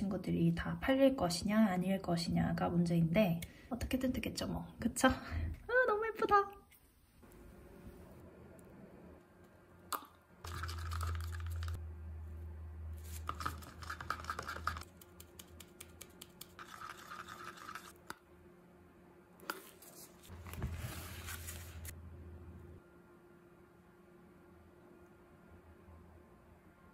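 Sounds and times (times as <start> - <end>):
stir stick scraping plastic cup: 10.5 - 11.8, 13.0 - 18.2.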